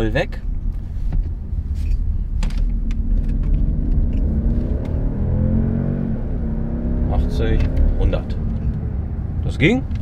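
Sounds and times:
low road rumble: 0.0 - 10.0
car engine accelerating: 2.3 - 10.0.

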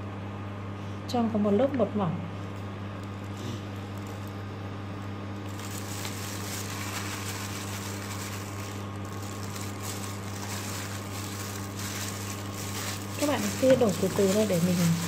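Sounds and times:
low electrical hum: 0.0 - 15.0
gloved hand rustling: 5.4 - 15.0.

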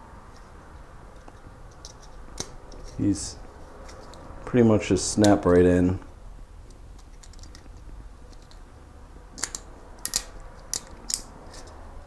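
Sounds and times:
plastic sockets snapping into bracket: 9.4 - 11.3.

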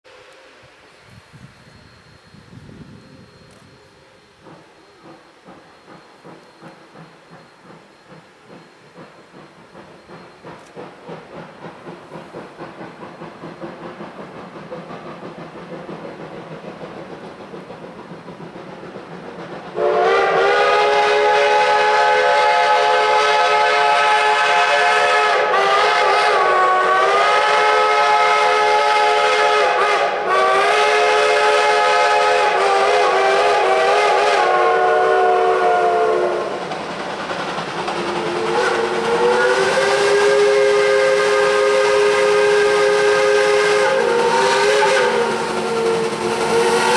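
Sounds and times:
chime steam whistle blast: 0.1 - 11.2, 19.8 - 36.7, 38.0 - 46.9
steam locomotive exhaust chuffing: 0.1 - 46.9.

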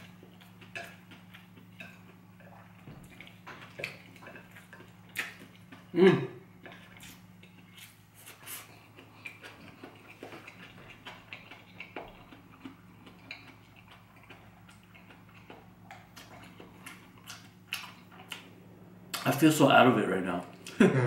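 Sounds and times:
person chewing: 0.0 - 19.4
low hum: 0.0 - 21.0.

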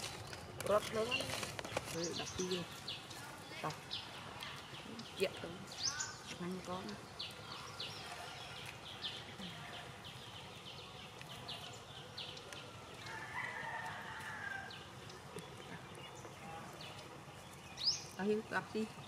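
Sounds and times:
bird chirping: 0.3 - 19.0
rooster crowing: 13.0 - 14.9.

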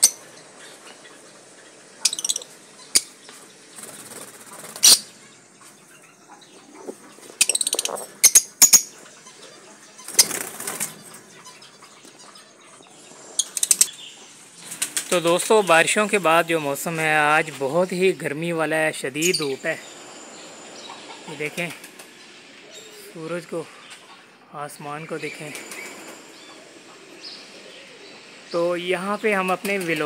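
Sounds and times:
lovebirds chirping shrilly: 0.0 - 30.0
wings flapping: 3.7 - 5.2, 10.0 - 11.3, 14.5 - 15.7, 21.4 - 22.2, 25.4 - 26.8.

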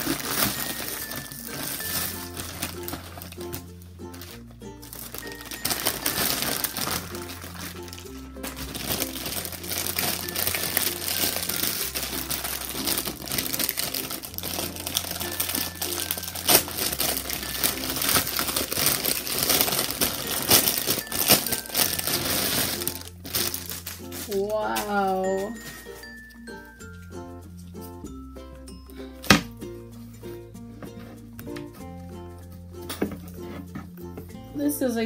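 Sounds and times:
plastic packaging crinkling: 0.0 - 26.3
background music with bass line: 26.4 - 35.0.

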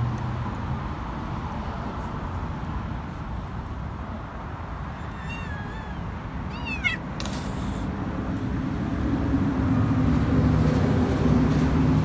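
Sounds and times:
kitten meowing: 4.9 - 7.9
brief hiss of noise: 7.2 - 7.9.

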